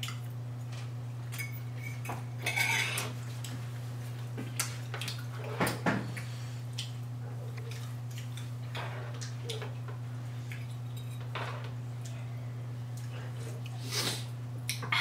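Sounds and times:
steady low hum: 0.0s - 15.0s
forks clinking on plates: 1.3s - 3.1s, 10.6s - 11.6s.

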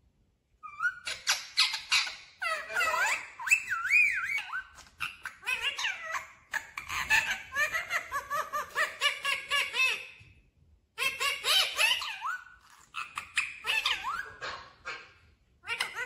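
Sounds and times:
parakeet chattering: 0.6s - 10.1s, 11.0s - 16.0s.

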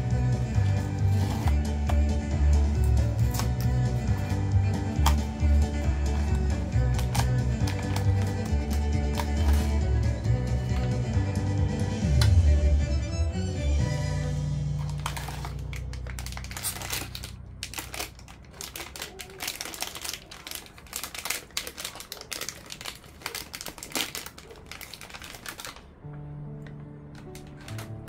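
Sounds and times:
foil bag crinkling: 0.6s - 1.6s, 4.9s - 9.9s, 14.8s - 26.0s, 27.2s - 28.0s.

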